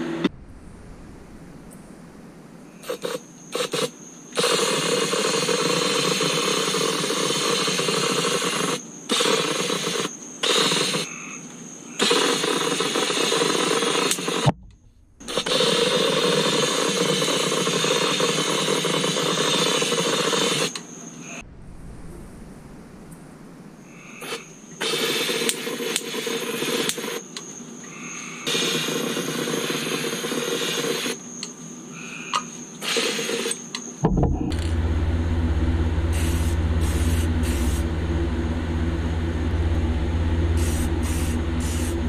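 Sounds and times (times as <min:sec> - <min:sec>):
spray gun hissing: 0:36.1 - 0:38.7, 0:40.3 - 0:42.0.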